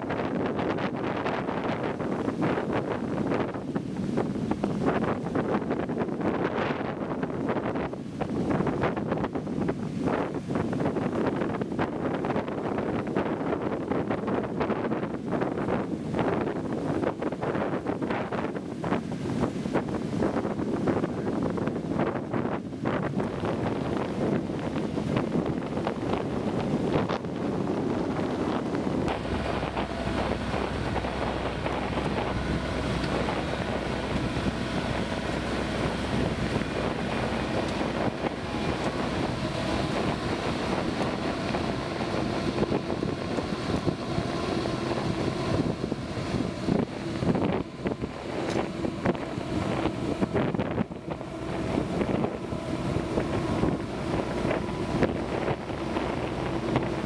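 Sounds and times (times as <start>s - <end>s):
wind noise on microphone: 0.0s - 57.0s
breaking surf: 18.0s - 57.0s
engines running steadily: 23.2s - 57.0s.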